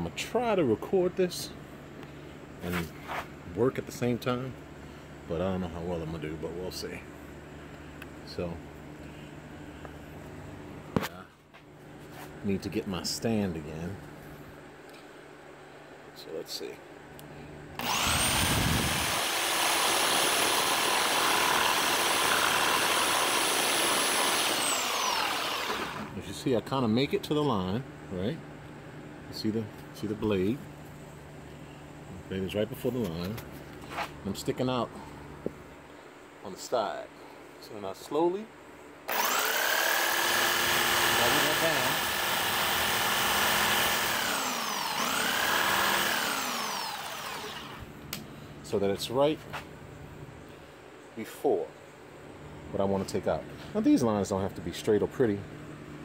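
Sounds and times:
electric jigsaw cutting wood: 0:17.8 - 0:26.2, 0:39.1 - 0:47.9.

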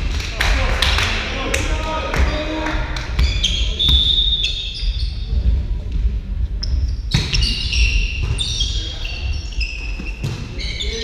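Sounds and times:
sneakers squeaking on floor: 0:03.1 - 0:05.4, 0:06.6 - 0:11.0.

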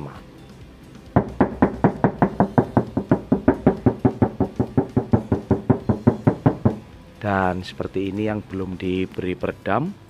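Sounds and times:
rapid knocking on car door: 0:01.2 - 0:06.8.

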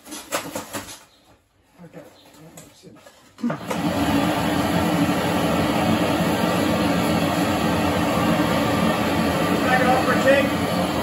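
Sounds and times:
gas torch flames roaring: 0:03.4 - 0:11.0.

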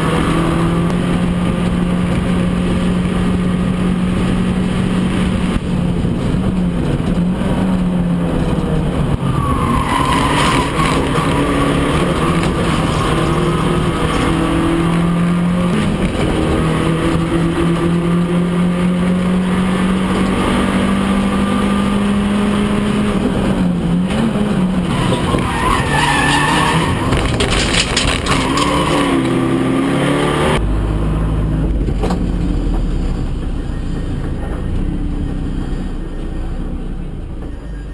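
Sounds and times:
race car engine at high revs: 0:00.0 - 0:33.2
tyres squealing: 0:09.2 - 0:14.7, 0:24.9 - 0:29.2.

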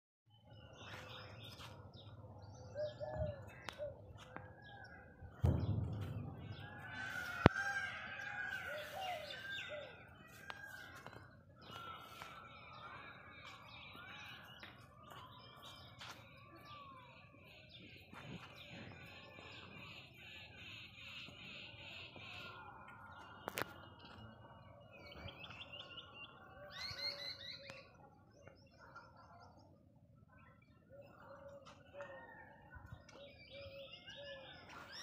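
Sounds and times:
birds chirping: 0:00.3 - 0:35.0
low thump: 0:05.3 - 0:07.6.

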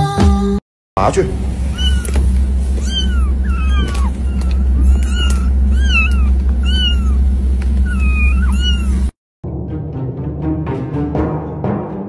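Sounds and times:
steady low hum: 0:01.0 - 0:09.2
kittens mewing: 0:01.7 - 0:09.2.

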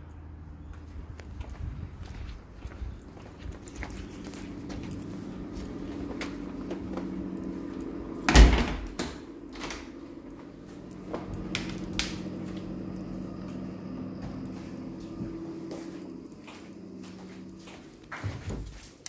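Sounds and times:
steady low hum: 0:00.0 - 0:19.0
door banging shut: 0:08.3 - 0:09.9
door knocks and clicks: 0:08.3 - 0:09.9.

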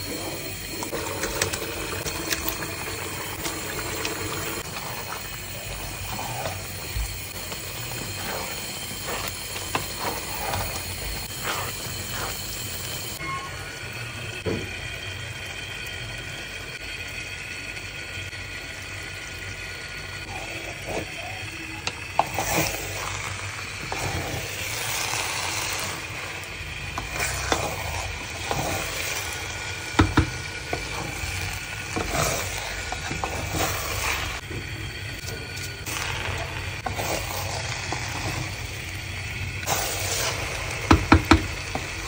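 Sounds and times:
steaming pot hiss: 0:00.0 - 0:42.0
metal spoon scraping pot: 0:04.6 - 0:13.2.

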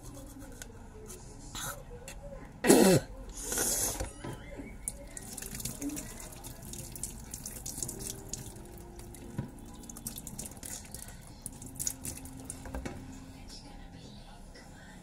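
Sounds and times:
water splashing over hands: 0:04.9 - 0:12.5
tap water running into sink: 0:04.9 - 0:13.0.

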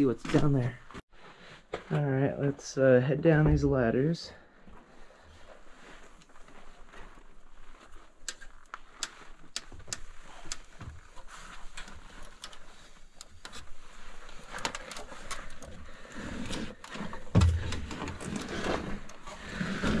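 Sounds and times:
hands and boots on wooden rungs: 0:04.6 - 0:20.0.

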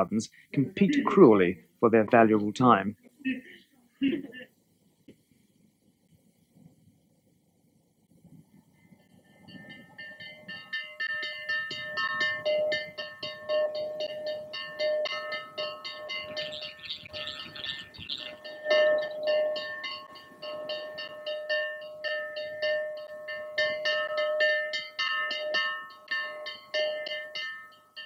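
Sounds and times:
large bell ringing: 0:09.2 - 0:28.0.

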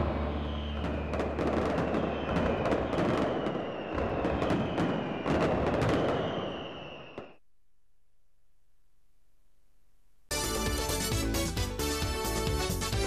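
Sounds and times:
firework whistle sliding down: 0:00.0 - 0:07.4
fireworks bangs and crackles: 0:00.0 - 0:07.4.

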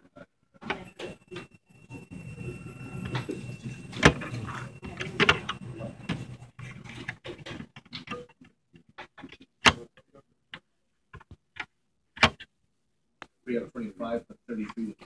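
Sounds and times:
steady low hum: 0:00.0 - 0:07.3.

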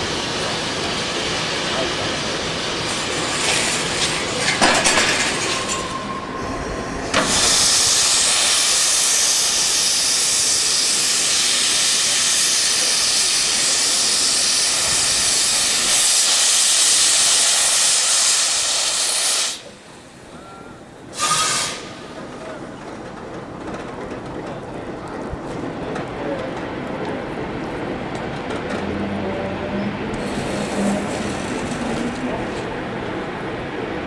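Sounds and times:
steam hissing: 0:00.0 - 0:20.2, 0:21.1 - 0:22.2, 0:30.1 - 0:32.8.

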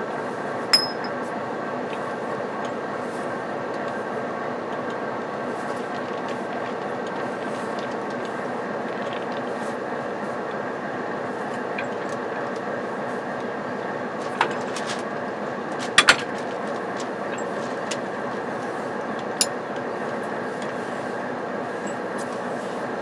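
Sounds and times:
train rumbling on rails: 0:00.0 - 0:23.0
sharp metallic clink: 0:00.7 - 0:01.2.

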